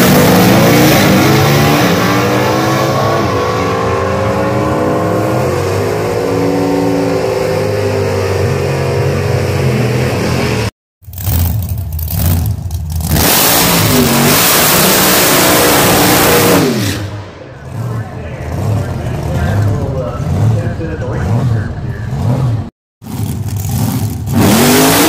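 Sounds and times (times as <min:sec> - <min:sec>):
car engine revving: 0:00.0 - 0:25.0
drag racing car engines at full throttle: 0:00.0 - 0:25.0.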